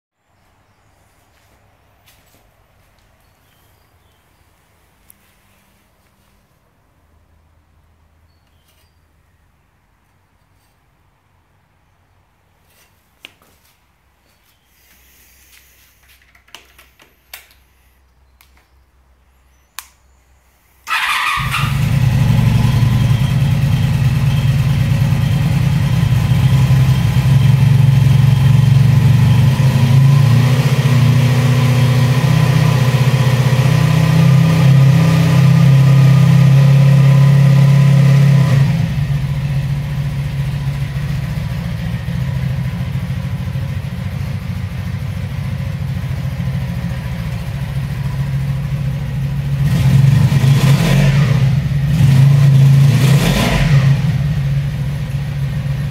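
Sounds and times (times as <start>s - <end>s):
motorcycle engine starting and idling: 20.8s - 55.9s.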